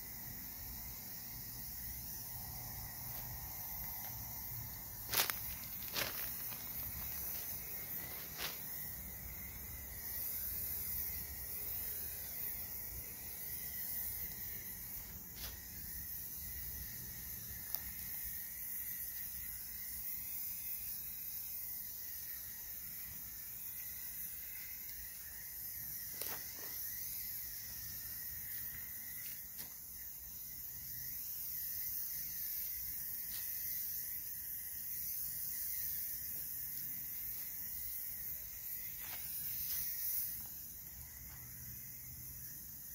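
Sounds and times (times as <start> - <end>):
spray paint can hissing: 38.7 - 40.6.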